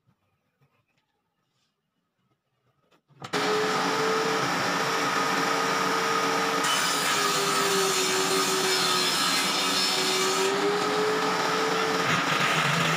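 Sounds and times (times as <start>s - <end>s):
electric power tool whining: 3.2s - 12.9s.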